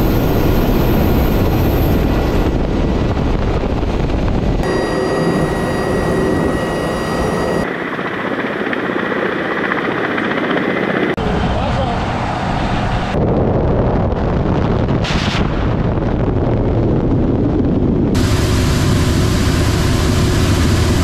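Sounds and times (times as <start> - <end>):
helicopter rotors and engines: 0.0 - 15.0, 15.8 - 21.0
steady whine: 4.3 - 7.9.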